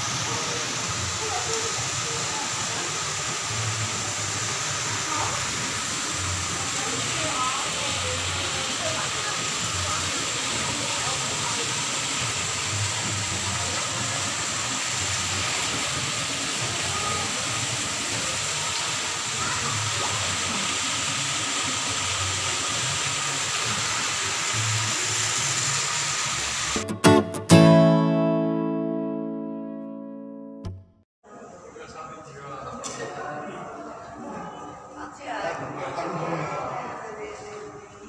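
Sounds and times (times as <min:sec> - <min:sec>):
water pouring into pond: 0:00.0 - 0:26.8
acoustic guitar music: 0:26.8 - 0:31.0.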